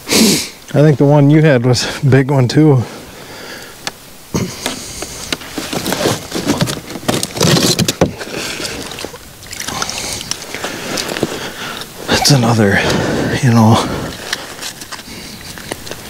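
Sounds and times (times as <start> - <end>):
jacket rustling: 4.8 - 13.2.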